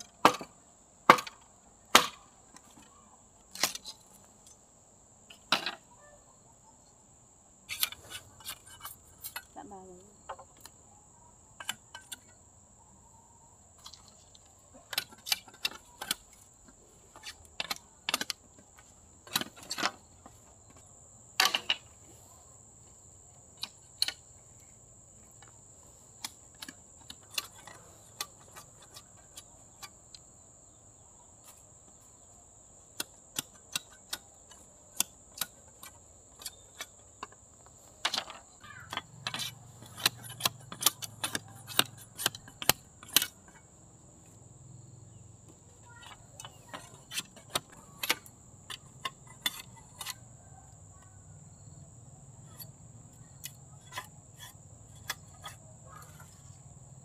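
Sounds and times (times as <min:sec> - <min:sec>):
sharp clicks and light knocks: 0:38.0 - 0:43.6, 0:46.0 - 0:50.2.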